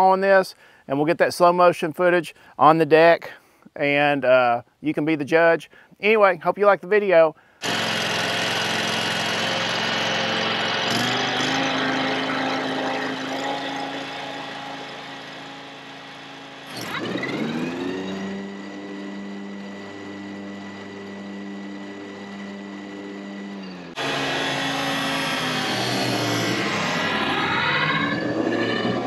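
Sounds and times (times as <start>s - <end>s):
mower engine running: 7.6s - 29.0s.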